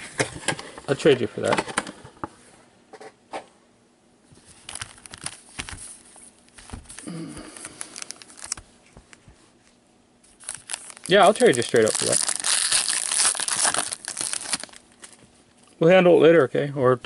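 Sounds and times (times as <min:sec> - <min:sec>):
foil wrappers crinkling: 0:04.5 - 0:08.7, 0:10.3 - 0:15.2.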